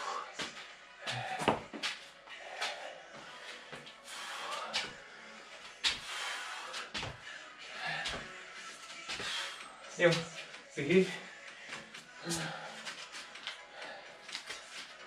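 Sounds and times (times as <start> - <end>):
trainers thudding on concrete floor: 1.1 - 2.0.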